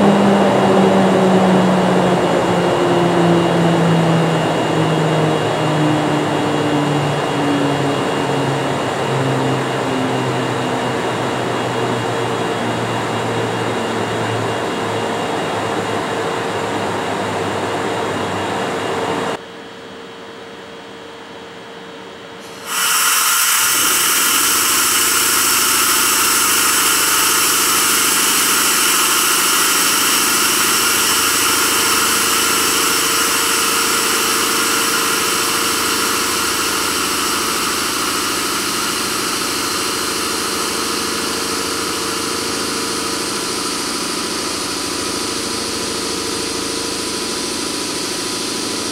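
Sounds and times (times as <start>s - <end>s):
electric locomotives running hum: 0.0s - 19.4s, 22.4s - 48.9s
locomotive equipment whirring hiss: 22.4s - 48.9s.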